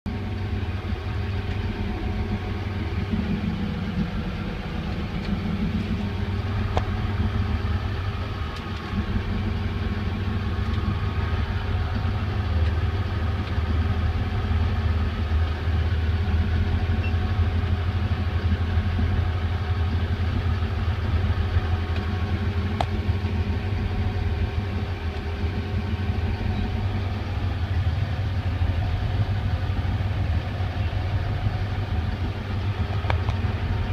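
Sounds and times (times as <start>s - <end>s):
boat engine humming: 0.0s - 33.9s.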